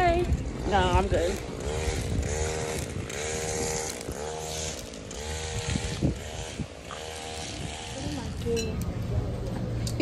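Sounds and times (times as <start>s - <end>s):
small engine revving: 0.6s - 8.5s.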